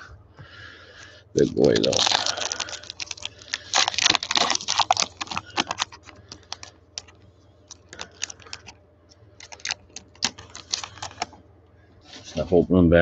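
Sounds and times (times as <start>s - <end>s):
card pack wrapper crinkling: 1.4s - 8.8s, 9.4s - 11.4s.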